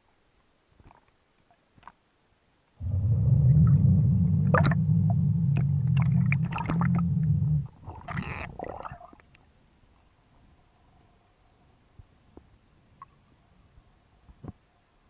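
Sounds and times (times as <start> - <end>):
hissing rush: 2.8 - 7.7
underwater rumble of moving water: 2.8 - 9.1.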